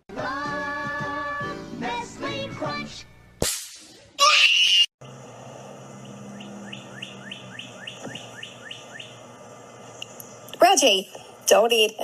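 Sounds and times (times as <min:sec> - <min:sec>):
high rising chirps: 0:06.0 - 0:09.3.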